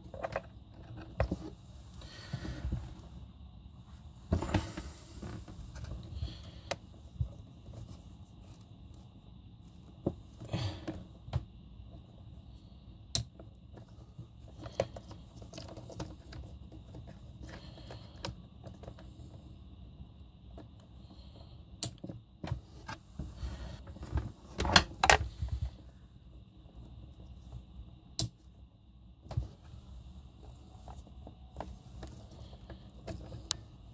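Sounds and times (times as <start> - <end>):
clicks of wire connectors: 28.2 - 28.4.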